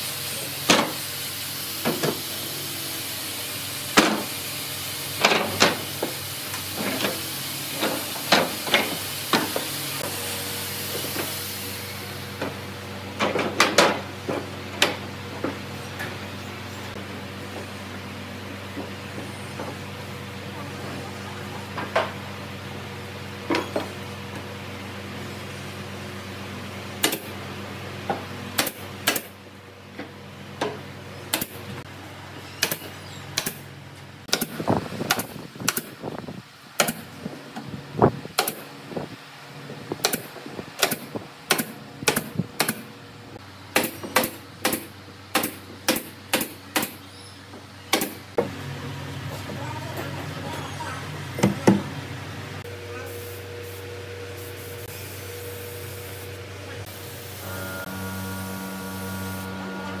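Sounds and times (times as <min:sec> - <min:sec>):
nail gun firing: 0:28.6 - 0:29.4, 0:34.3 - 0:36.0, 0:38.4 - 0:38.7, 0:40.0 - 0:42.8, 0:43.8 - 0:47.0.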